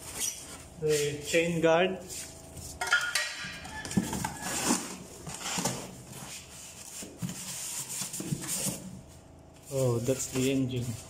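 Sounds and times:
cardboard and styrofoam scraping: 4.1 - 11.0.

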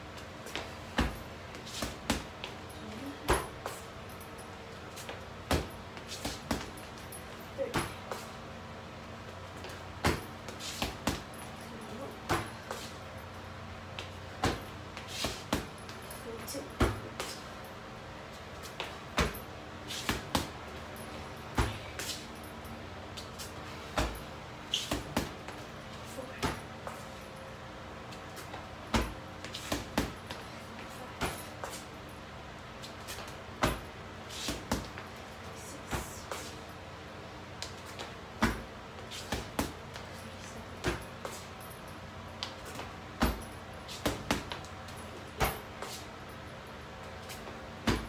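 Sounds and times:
punches and kicks on punching bag: 0.5 - 3.7, 5.4 - 6.9, 7.5 - 8.2, 9.6 - 12.8, 14.3 - 17.4, 18.8 - 20.6, 21.4 - 22.1, 23.8 - 25.6, 26.2 - 26.7, 28.9 - 30.4, 31.1 - 31.6, 33.2 - 35.0, 38.0 - 40.0, 40.8 - 41.2, 42.7 - 44.6, 45.2 - 45.8, 47.8 - 48.0
heavy thuds on punching bag: 21.5 - 22.0, 28.9 - 30.2, 33.6 - 33.9, 43.2 - 44.6, 45.4 - 45.7, 47.8 - 48.0.

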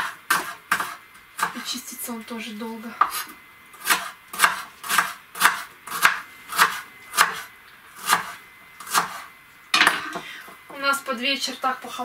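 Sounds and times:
knife chopping onion on wooden board: 0.0 - 1.6, 3.0 - 9.2.

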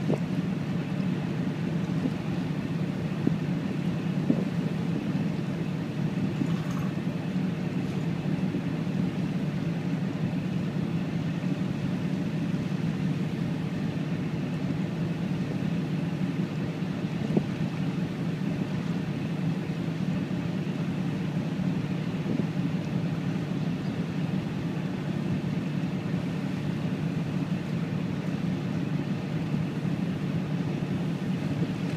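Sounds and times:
ferry engine droning: 0.0 - 31.9
water noise: 0.0 - 31.9.

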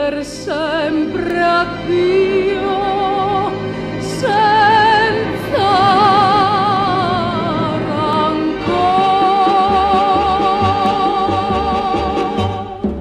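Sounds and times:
held note with vibrato: 4.2 - 11.5.

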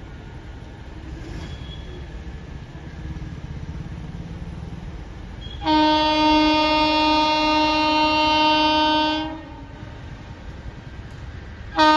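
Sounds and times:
low rumble of train: 0.0 - 11.9
train horn blast: 5.4 - 10.0.

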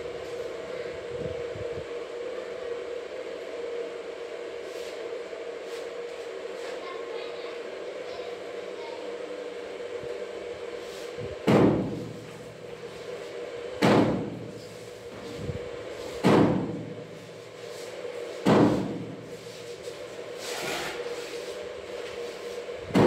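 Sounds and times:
steady hum: 0.0 - 23.0
loud knocks with echo: 11.4 - 12.0, 13.8 - 14.4, 16.2 - 16.8, 18.4 - 19.2.

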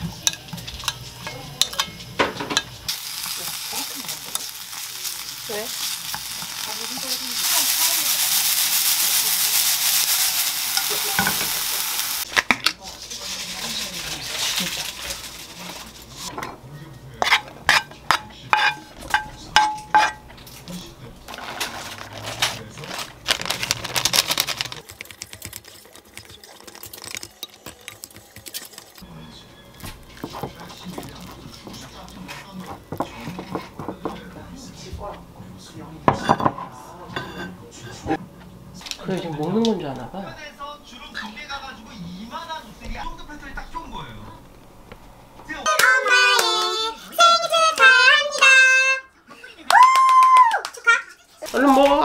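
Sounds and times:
meat sizzling in frying pan: 2.8 - 12.3
spatula stirring: 3.2 - 11.6, 17.2 - 20.2, 21.3 - 34.3.

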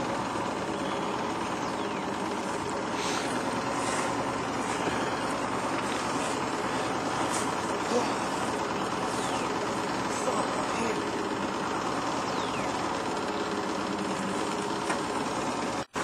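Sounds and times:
outboard motor running: 0.0 - 16.0.

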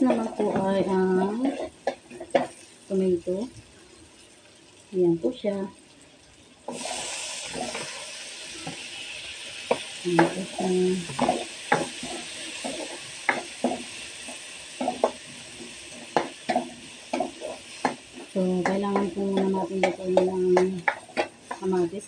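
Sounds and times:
ladle scraping a wok: 0.0 - 2.5, 6.7 - 8.8
tomatoes sizzling in hot oil: 0.0 - 22.0.

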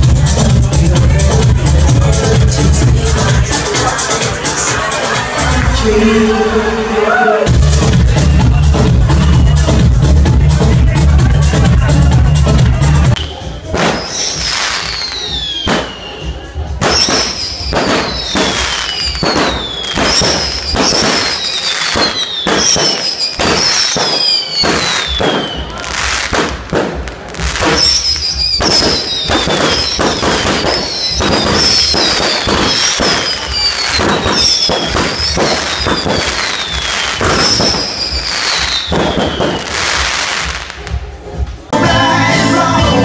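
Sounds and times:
fireworks bangs and crackles: 0.0 - 5.7, 7.5 - 41.8
whistling firework shells: 13.2 - 26.6, 27.4 - 40.5.

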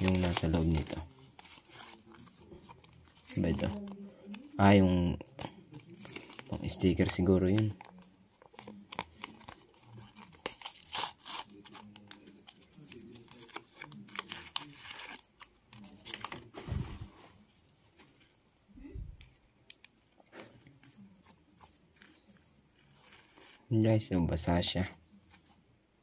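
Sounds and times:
foil sachet tearing and crinkling: 0.0 - 4.0, 8.5 - 12.2.

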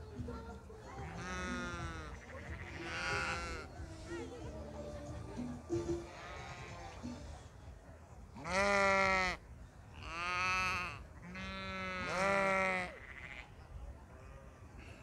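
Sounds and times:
sheep bleating: 0.9 - 3.7, 6.1 - 7.0, 8.4 - 9.4, 10.0 - 13.6.

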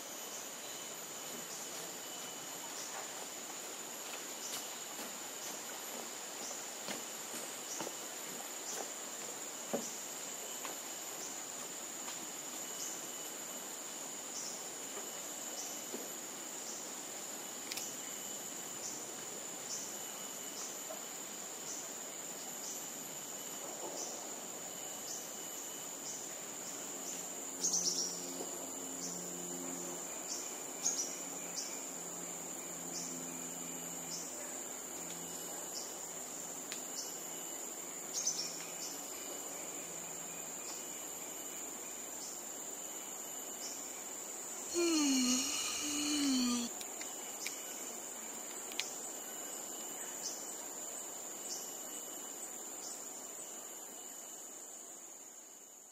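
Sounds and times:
insects shrilling: 44.7 - 46.7.

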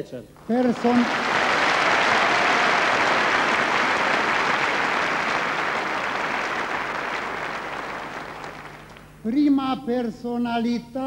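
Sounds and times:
audience applauding: 0.4 - 9.2.

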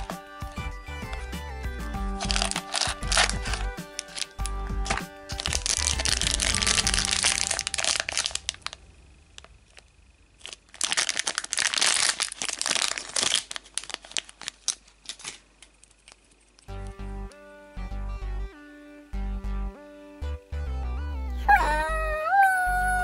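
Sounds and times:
plastic wrapper crinkling: 0.0 - 1.3, 2.0 - 16.8
background music: 0.0 - 8.5, 16.7 - 23.0.

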